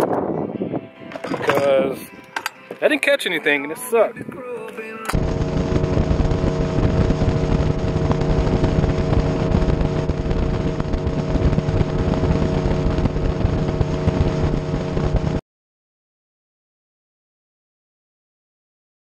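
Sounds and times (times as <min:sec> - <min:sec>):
wind noise: 0:00.0 - 0:02.8, 0:03.6 - 0:04.5, 0:05.1 - 0:15.4
outboard motor running: 0:01.1 - 0:02.5, 0:05.0 - 0:15.4
water noise: 0:05.0 - 0:15.4.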